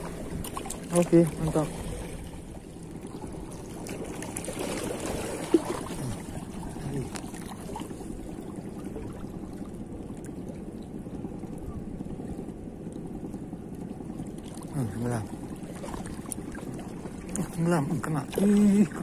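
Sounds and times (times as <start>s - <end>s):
water lapping against rocks: 0.0s - 10.8s, 13.4s - 19.0s.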